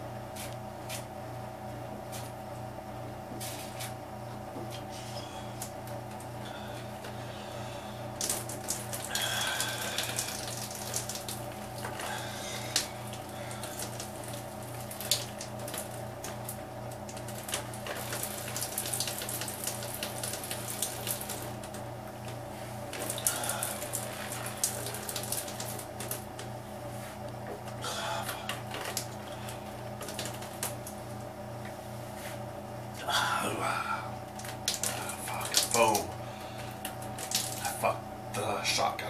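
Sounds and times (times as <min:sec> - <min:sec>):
steady low hum: 0:00.0 - 0:39.0
beer gushing and fizzing: 0:08.1 - 0:21.7, 0:22.8 - 0:26.3, 0:36.7 - 0:37.9.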